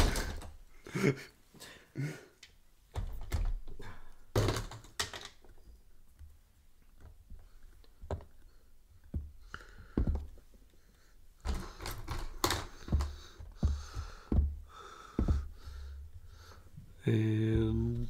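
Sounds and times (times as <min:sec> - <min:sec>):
tubes and brushes clattering on wood: 0:00.0 - 0:00.6, 0:03.0 - 0:05.7, 0:11.4 - 0:16.8.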